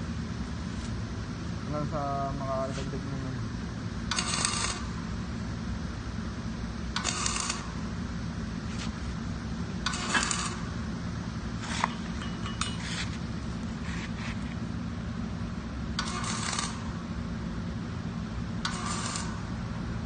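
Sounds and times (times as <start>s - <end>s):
low electrical hum: 0.0s - 20.0s
metal scraping and clinking: 11.6s - 13.2s
sharp metal taps: 11.8s - 13.1s.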